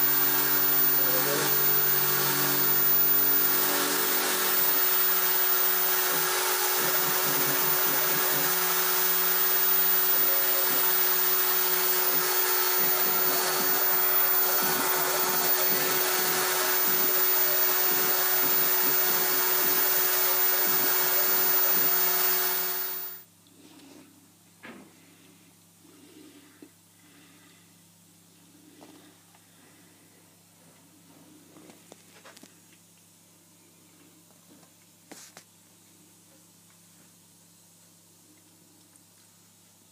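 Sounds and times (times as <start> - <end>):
bit cutting plastic: 0.0 - 23.2
engraving spindle whine: 0.0 - 23.2.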